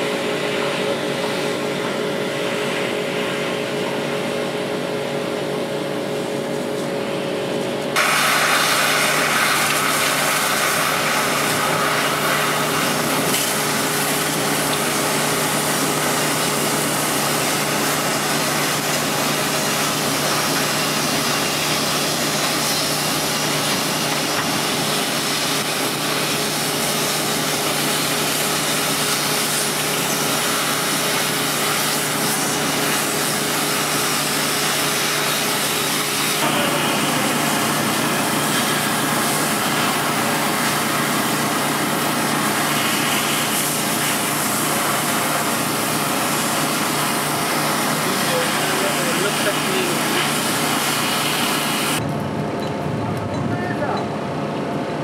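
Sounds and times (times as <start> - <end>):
engine running: 0.0 - 55.0
cutting torch hissing: 7.9 - 52.0.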